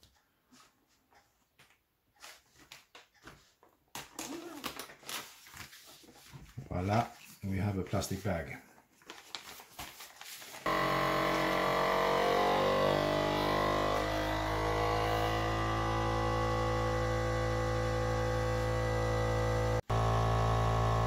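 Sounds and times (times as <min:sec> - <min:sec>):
vacuum sealer pump motor hum: 0:10.7 - 0:21.0.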